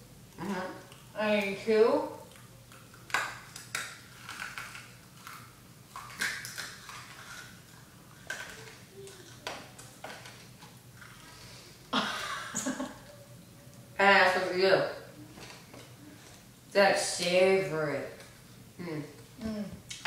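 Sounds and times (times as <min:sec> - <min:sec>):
plastic wrappers crackling: 0:02.3 - 0:11.6.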